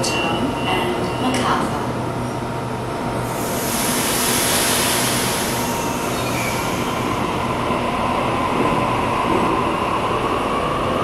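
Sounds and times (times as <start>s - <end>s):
electric train humming: 0.0s - 11.0s
loud air hiss: 3.2s - 7.6s.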